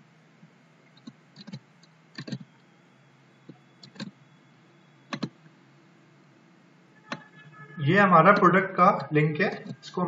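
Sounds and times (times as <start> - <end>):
faint steady hum: 0.0 - 10.0
mouse and keyboard clicks: 0.9 - 1.6, 2.2 - 2.5, 3.5 - 4.2, 5.1 - 5.4.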